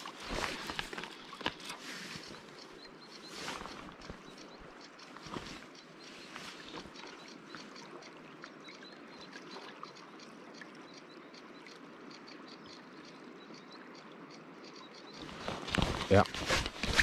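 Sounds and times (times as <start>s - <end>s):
small trickling splashes: 6.3s - 11.0s.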